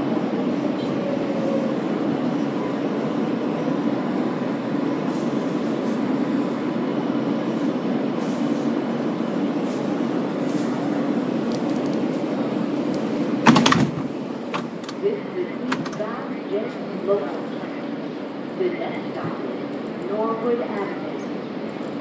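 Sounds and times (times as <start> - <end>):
steady train hum: 0.0 - 22.0.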